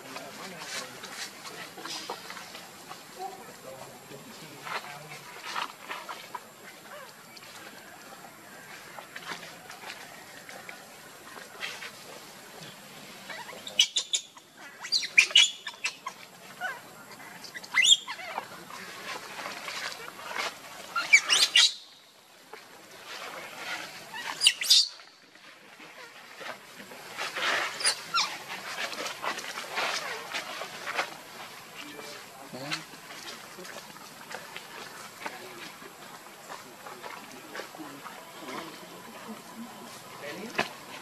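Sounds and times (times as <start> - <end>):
dry leaves rustling: 0.0 - 13.7, 14.6 - 41.0
baby monkey screaming: 17.5 - 18.4.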